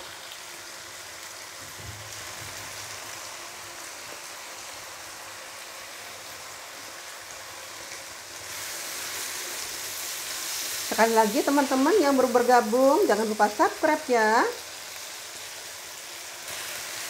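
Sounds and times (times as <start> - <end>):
sizzling in a wok: 0.0 - 17.0.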